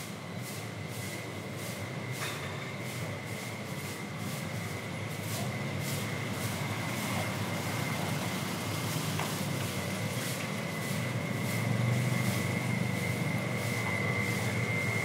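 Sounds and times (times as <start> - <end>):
vehicle engine rumble: 4.7 - 15.0.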